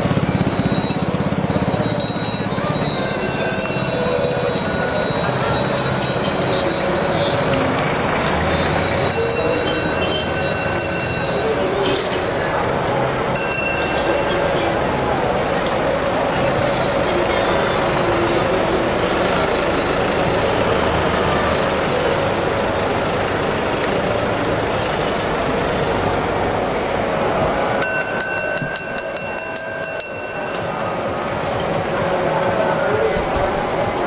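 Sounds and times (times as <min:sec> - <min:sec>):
small metal bell ringing: 0:00.0 - 0:12.6, 0:13.4 - 0:14.9, 0:27.8 - 0:30.9
busy street din: 0:00.0 - 0:34.0.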